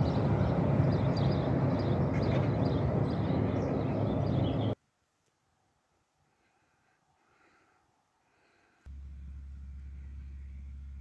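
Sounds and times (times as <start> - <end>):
birds chirping: 0.0 - 4.8, 6.3 - 11.0
steady low rumble: 0.0 - 4.8, 8.8 - 11.0.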